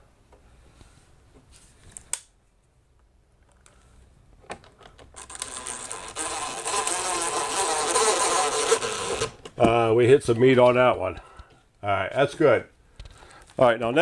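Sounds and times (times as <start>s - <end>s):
cordless drill driving screw: 5.2s - 9.4s.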